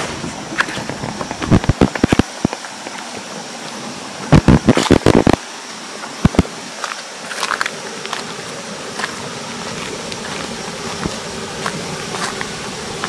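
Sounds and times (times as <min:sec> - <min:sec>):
steady high hiss: 0:00.0 - 0:13.0
footsteps crunching on dry leaves: 0:06.3 - 0:13.0.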